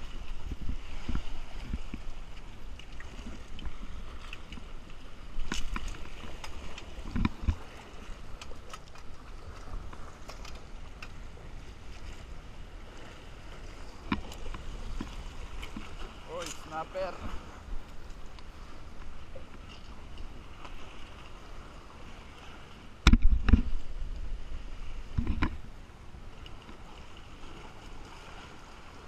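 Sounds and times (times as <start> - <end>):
water sloshing and lapping: 0.0 - 29.0
fishing gear clicks and knocks: 5.4 - 7.7, 8.3 - 11.2, 14.0 - 16.7.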